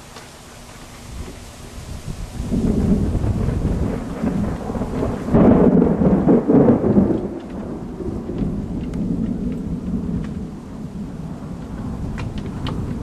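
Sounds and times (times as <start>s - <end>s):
steady rain: 0.0s - 13.0s
thunder rumbling: 1.0s - 13.0s
raindrop ticks: 2.8s - 13.0s.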